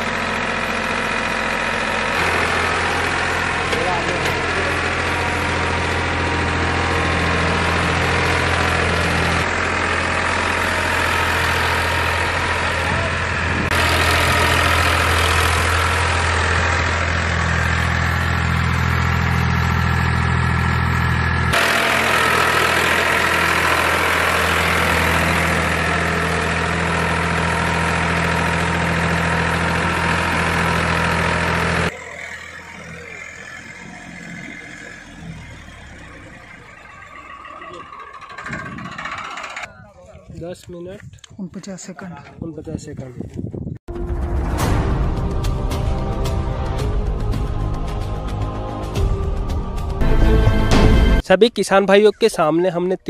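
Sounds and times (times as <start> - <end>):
tractor diesel engine under load: 0.0 - 41.3.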